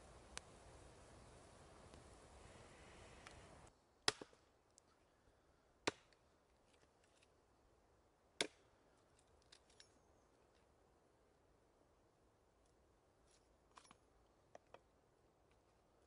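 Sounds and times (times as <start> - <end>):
campfire crackling: 0.0 - 4.9
hatchet chopping wood: 4.0 - 4.4, 5.8 - 6.2, 8.4 - 8.6.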